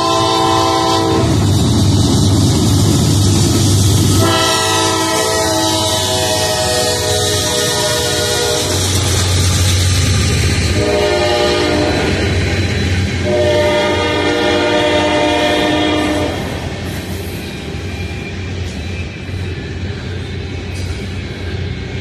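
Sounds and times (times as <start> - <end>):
locomotive air horn: 0.0 - 1.4, 4.1 - 9.0, 10.7 - 12.4, 13.2 - 16.6
freight train rumbling past: 0.0 - 22.0.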